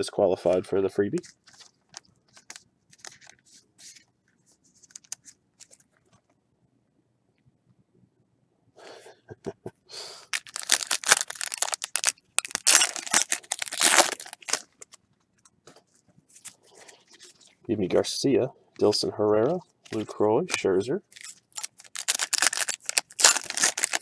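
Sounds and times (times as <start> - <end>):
foil wrapper tearing and crinkling: 10.3 - 15.0, 21.1 - 24.0.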